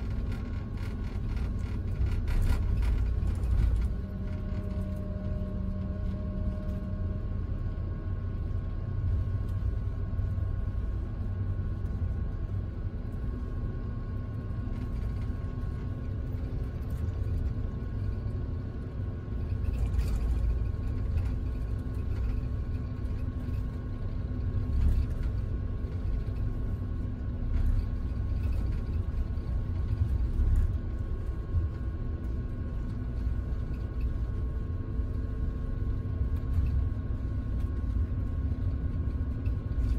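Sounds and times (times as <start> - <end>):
engine and road rumble: 0.0 - 39.9
faint steady hum: 0.0 - 39.9.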